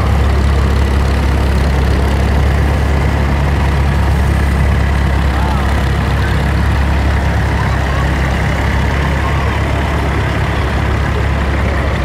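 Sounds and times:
tractor engines droning: 0.0 - 12.0.

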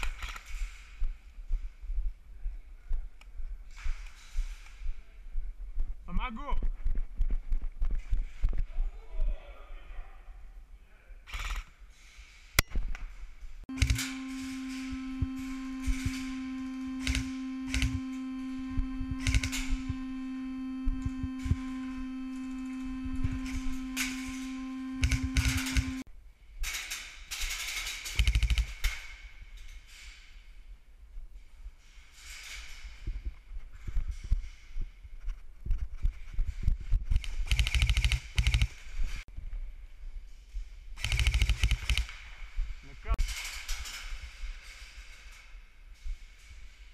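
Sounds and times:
scattered clicks and knocks: 13.7 - 26.1, 26.7 - 29.0, 37.1 - 38.9, 41.0 - 42.2
steady electrical hum: 13.7 - 26.1.

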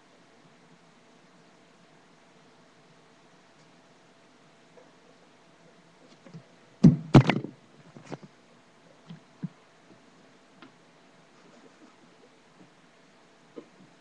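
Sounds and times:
loud knocks with rattle: 6.8 - 8.2.

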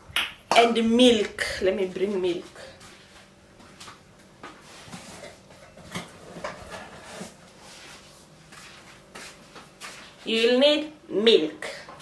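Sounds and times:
kitchen knocks and clatters: 4.9 - 6.9.

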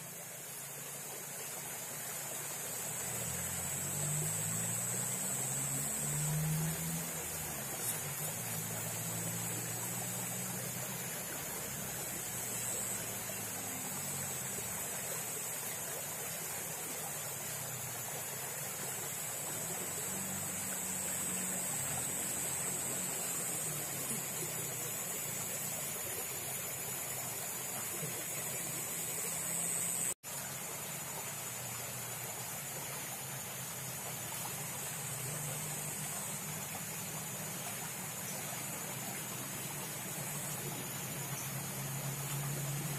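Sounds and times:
stream water running: 0.0 - 42.9
steady high whine: 1.4 - 17.6, 18.3 - 30.2
low wavering hum: 2.7 - 16.0.

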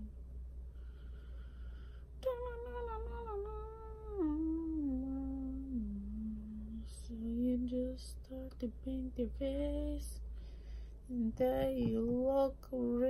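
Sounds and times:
woman humming a slow tune: 2.2 - 8.5.

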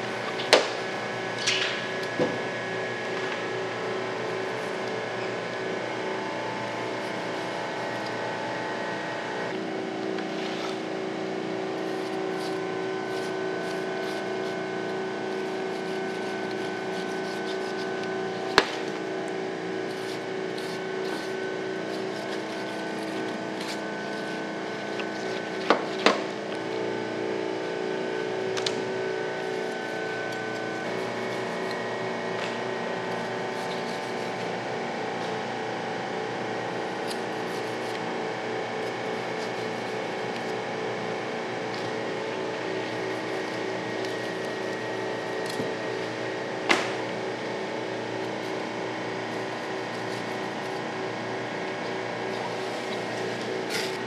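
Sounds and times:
steady mechanical hum: 0.0 - 54.0
knife cutting and scraping flesh: 11.8 - 18.9.

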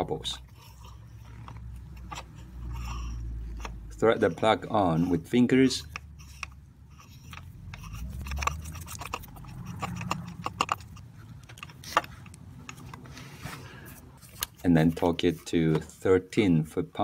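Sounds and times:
metal socket clicks and scrapes: 0.4 - 13.1.

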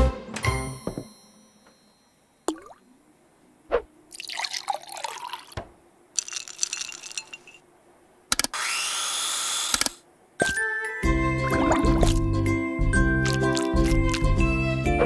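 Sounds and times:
cartoon fruit plopping and squelching: 11.5 - 12.3, 13.2 - 14.4.

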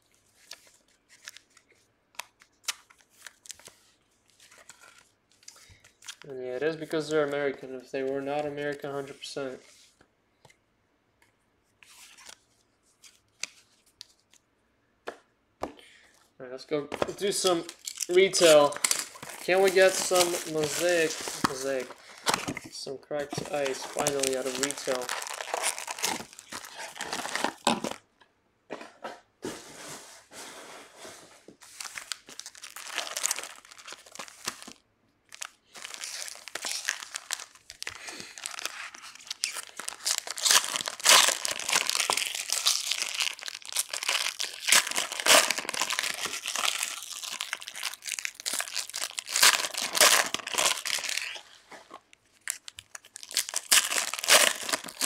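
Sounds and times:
foil packs crinkling and tearing: 17.1 - 28.0, 31.6 - 55.0.

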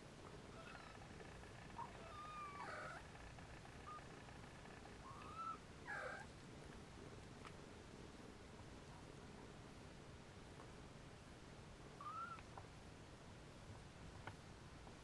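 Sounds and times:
kittens mewing faintly: 0.5 - 6.3, 12.0 - 12.4.

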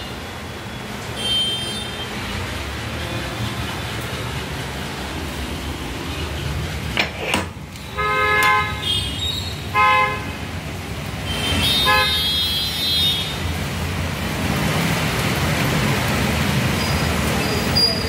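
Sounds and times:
street traffic: 0.0 - 18.0
vehicle horns honking: 7.9 - 10.4, 11.3 - 13.4.

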